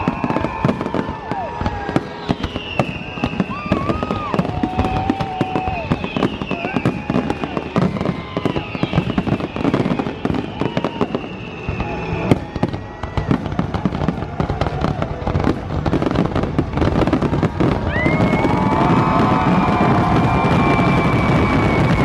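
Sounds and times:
fireworks bangs and crackles: 0.0 - 22.0.

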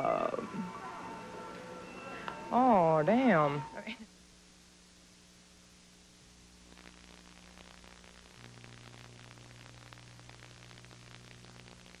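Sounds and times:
videotape hiss: 0.0 - 12.0
small crackles: 6.4 - 12.0.

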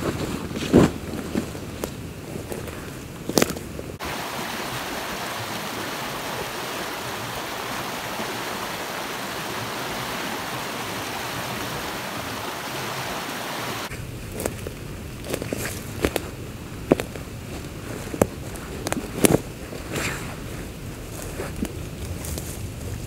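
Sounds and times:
creek rushing over rocks: 4.0 - 13.9.

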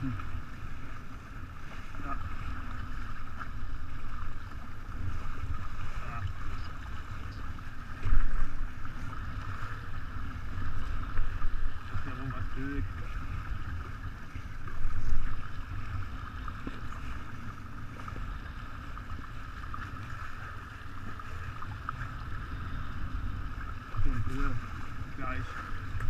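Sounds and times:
water rushing along hull: 0.0 - 26.0.

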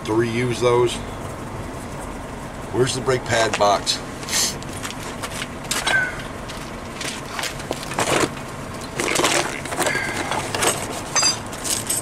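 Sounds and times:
cardboard box rustling and scraping: 6.6 - 8.4, 9.0 - 11.2.

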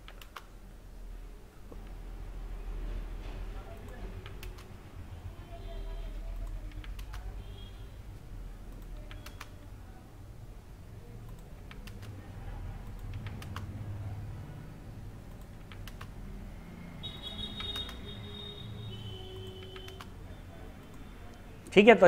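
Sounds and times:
computer keyboard typing: 0.0 - 0.6, 3.7 - 4.8, 6.1 - 7.4, 8.6 - 9.7, 11.2 - 14.1, 15.1 - 16.2, 17.0 - 21.8.

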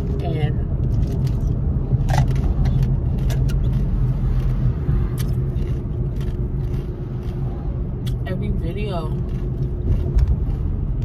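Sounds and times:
car cabin road rumble: 0.0 - 11.0
ice crunching while chewed: 0.9 - 7.5.

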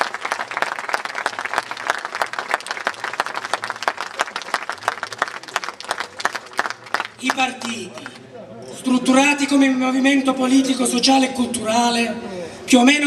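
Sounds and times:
crowd applauding: 0.0 - 8.2.

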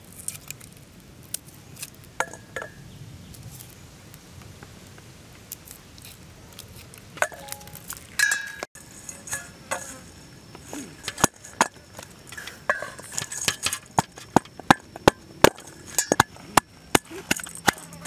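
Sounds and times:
small clicks of garlic peeling: 0.0 - 2.1, 5.5 - 7.1
garlic clinking in a steel bowl: 7.2 - 10.0, 12.3 - 14.0.

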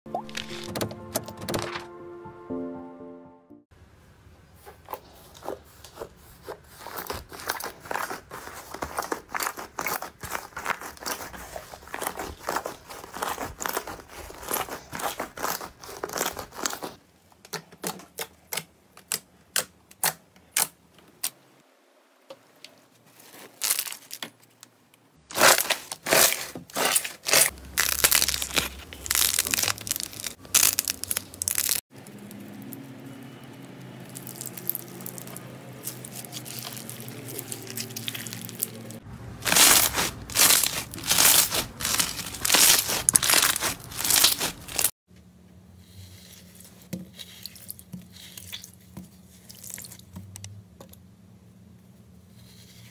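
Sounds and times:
slime crackling and popping: 25.3 - 32.8, 34.0 - 44.9.

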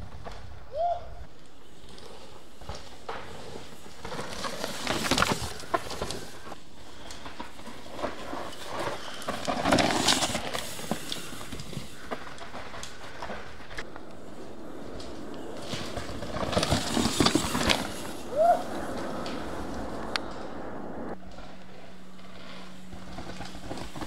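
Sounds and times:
bike tyres skidding on dirt: 0.0 - 24.0
bike knocks and rattles: 2.5 - 6.6, 7.2 - 13.8, 15.0 - 19.6.

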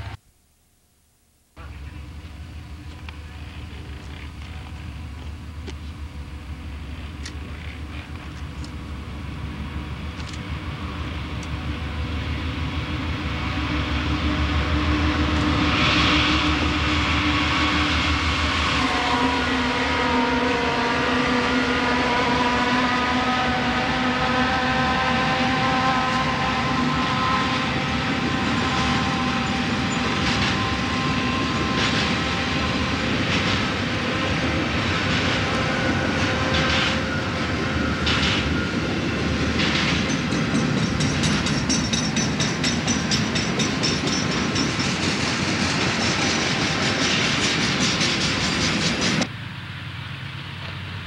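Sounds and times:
diesel locomotives running: 1.6 - 51.0
high wheel squeal: 24.8 - 32.9
wheels clicking over rail joints: 39.5 - 49.3.

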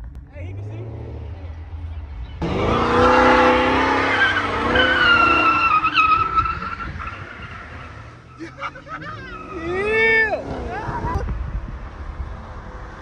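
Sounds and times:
car tyres squealing: 1.8 - 11.3.

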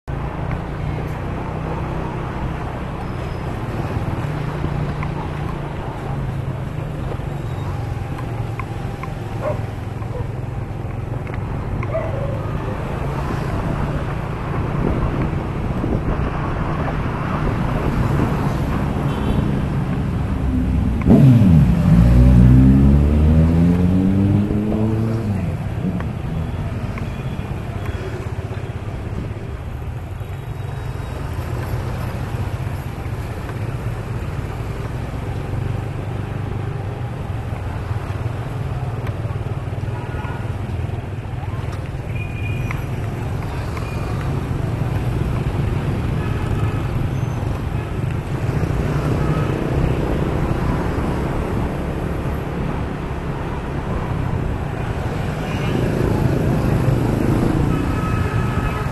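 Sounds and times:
road noise: 0.0 - 58.9
nearby engine accelerating: 20.3 - 25.5.

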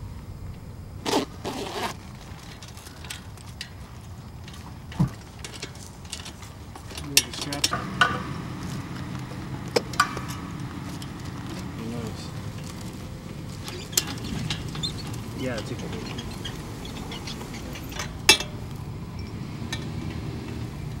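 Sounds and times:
gloved hands scraping rope: 1.0 - 3.6
metallic clicks and clanks: 1.8 - 21.0.

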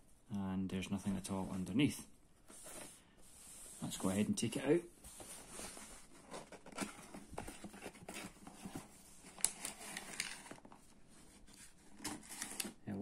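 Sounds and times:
cardboard scraping and rustling: 2.4 - 4.2, 5.0 - 12.8.

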